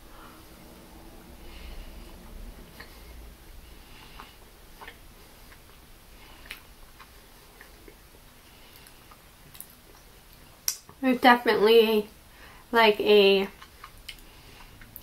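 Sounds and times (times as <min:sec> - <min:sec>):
faint chewing: 0:01.5 - 0:11.0, 0:13.4 - 0:15.0.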